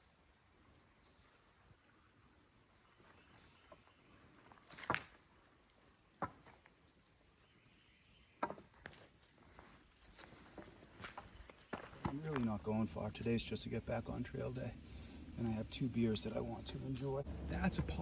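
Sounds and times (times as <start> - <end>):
footsteps on leafy dirt trail: 2.9 - 5.3, 8.5 - 13.1
faint high chirp: 5.8 - 9.1.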